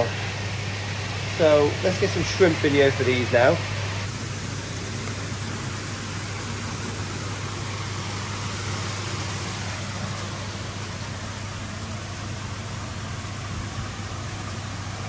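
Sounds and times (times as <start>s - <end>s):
pond pump low hum: 0.0s - 15.0s
rushing water: 4.1s - 15.0s.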